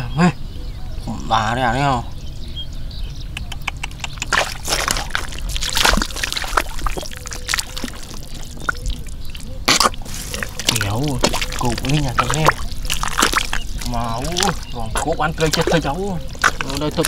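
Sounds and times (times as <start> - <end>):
hands splashing in muddy water: 4.2 - 17.0.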